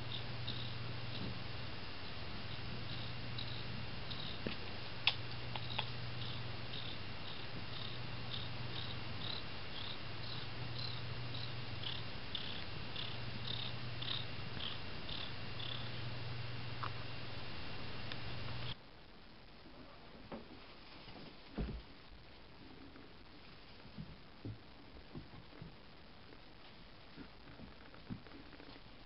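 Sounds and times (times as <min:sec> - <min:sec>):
cat purring: 0:00.0 - 0:16.2, 0:22.6 - 0:29.0
faint high ticking: 0:00.0 - 0:18.8.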